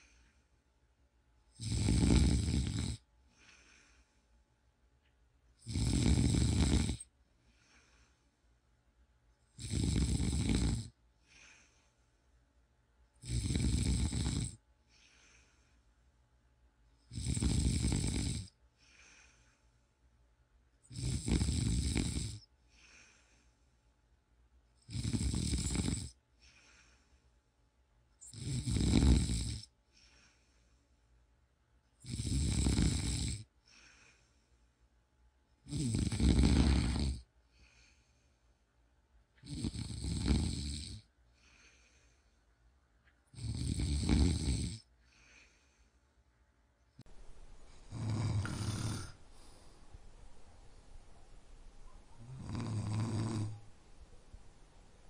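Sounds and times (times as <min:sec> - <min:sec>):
faint breathing: 0:00.0 - 0:00.7, 0:03.2 - 0:04.5, 0:07.3 - 0:08.6, 0:11.2 - 0:12.4, 0:14.8 - 0:16.1, 0:18.7 - 0:20.1, 0:22.6 - 0:24.0, 0:26.3 - 0:27.5, 0:29.8 - 0:31.2, 0:33.6 - 0:34.9, 0:36.1 - 0:38.8, 0:41.2 - 0:42.6, 0:44.9 - 0:46.2, 0:47.0 - 0:53.7
man snoring: 0:01.6 - 0:03.0, 0:05.6 - 0:07.1, 0:09.6 - 0:11.0, 0:13.2 - 0:14.6, 0:17.1 - 0:18.5, 0:20.9 - 0:22.5, 0:24.8 - 0:26.2, 0:28.2 - 0:29.7, 0:32.0 - 0:33.5, 0:35.7 - 0:37.3, 0:39.4 - 0:41.1, 0:43.4 - 0:44.9, 0:47.9 - 0:49.6, 0:52.2 - 0:53.6.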